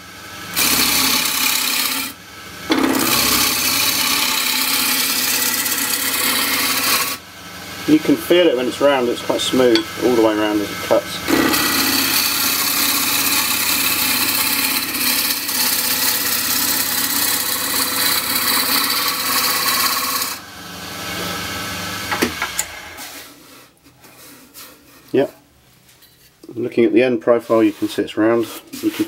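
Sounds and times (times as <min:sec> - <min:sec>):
wood lathe running: 0:00.5 - 0:07.2, 0:07.8 - 0:22.8.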